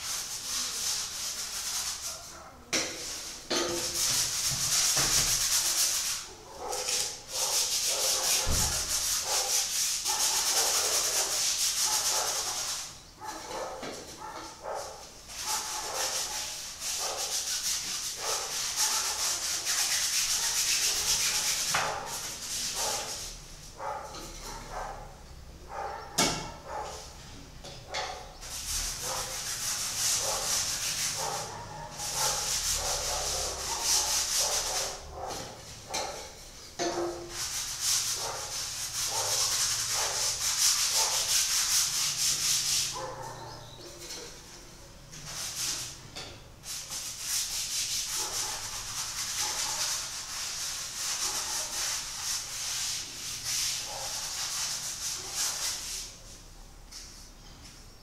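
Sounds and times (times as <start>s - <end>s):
paintbrush scrubbing on canvas: 0.0s - 25.1s, 28.4s - 36.4s, 37.0s - 46.0s, 46.6s - 57.1s.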